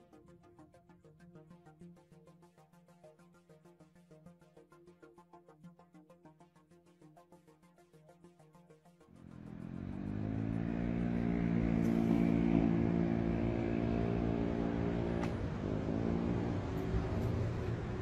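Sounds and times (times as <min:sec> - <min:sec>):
engine humming: 0:09.2 - 0:18.0.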